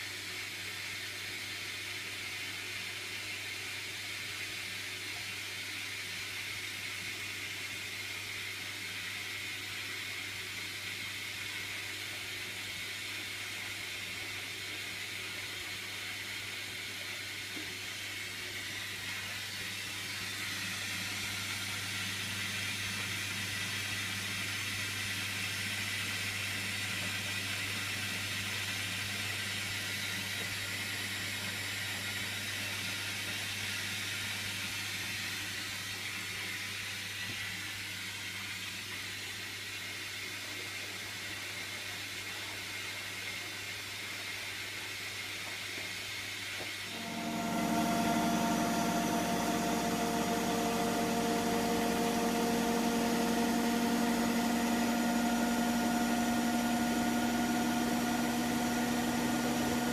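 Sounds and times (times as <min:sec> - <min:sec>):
washing machine running: 0:18.6 - 0:34.8, 0:46.9 - 0:59.9.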